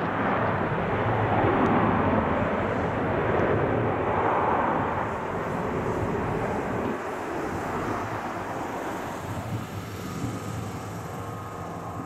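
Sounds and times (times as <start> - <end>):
jet engines roaring: 0.0 - 12.0.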